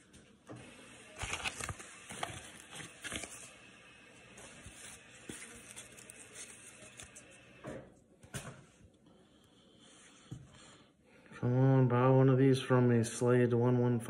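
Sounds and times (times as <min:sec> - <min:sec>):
paper wrapper crinkling: 0:01.1 - 0:03.6, 0:04.3 - 0:07.5
plastic card holder rustling: 0:01.2 - 0:03.5, 0:04.4 - 0:07.4.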